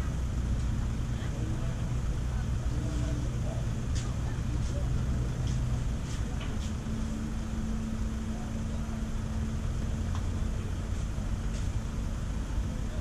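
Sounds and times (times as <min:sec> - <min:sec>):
engine drone: 0:00.0 - 0:13.0.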